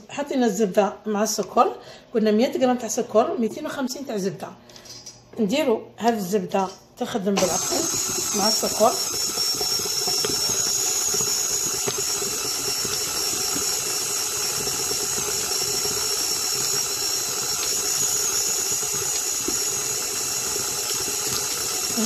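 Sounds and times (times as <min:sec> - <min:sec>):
beater in metal bowl: 0:07.4 - 0:22.0
stand mixer whining: 0:07.4 - 0:22.0.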